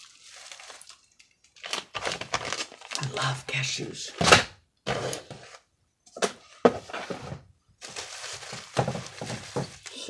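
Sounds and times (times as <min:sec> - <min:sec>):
packaging rustling: 0:00.0 - 0:03.4, 0:06.9 - 0:10.0
items knocking when set down: 0:06.2 - 0:07.5, 0:08.4 - 0:09.8.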